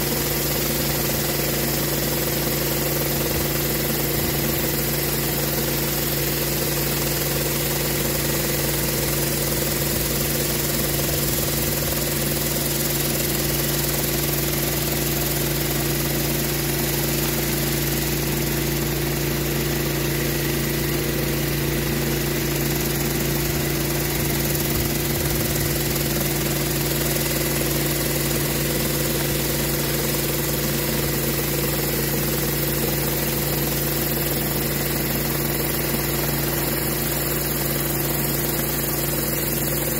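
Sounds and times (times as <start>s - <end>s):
pressure washer engine running: 0.0s - 39.9s.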